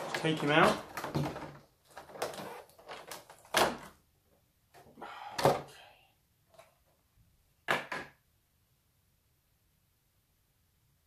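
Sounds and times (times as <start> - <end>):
plastic packaging crackling: 0.0 - 3.8.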